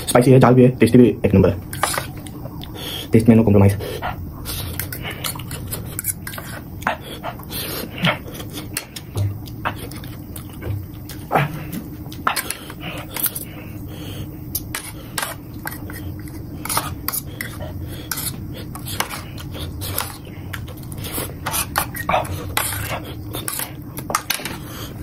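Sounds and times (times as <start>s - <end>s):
mouth sounds of eating: 1.8s - 25.0s.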